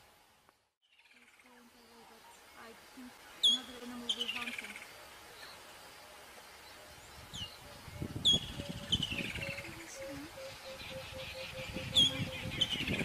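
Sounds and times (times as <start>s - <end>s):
bird calls: 0.9s - 13.0s.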